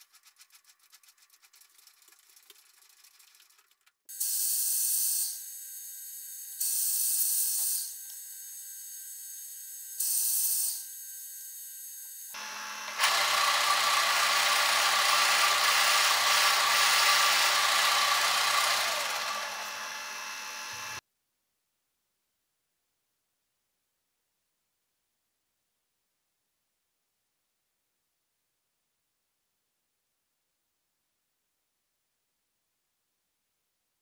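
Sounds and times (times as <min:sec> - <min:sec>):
drill cutting into metal: 0:04.1 - 0:21.0
milling machine motor humming: 0:12.4 - 0:21.0.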